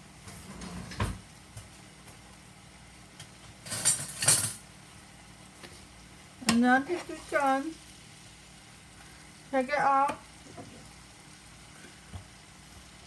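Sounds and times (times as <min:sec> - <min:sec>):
faint steady hiss: 0:00.0 - 0:13.0
kitchenware clinking and clattering: 0:03.6 - 0:04.6.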